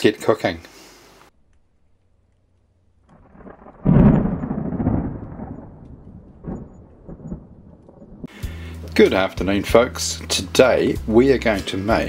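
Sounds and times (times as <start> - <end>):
deep boom rumbling: 3.2 - 8.3.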